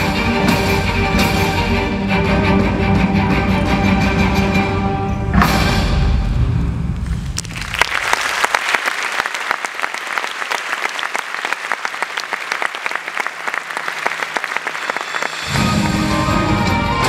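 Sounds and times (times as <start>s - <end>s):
audience applause: 7.2s - 17.0s.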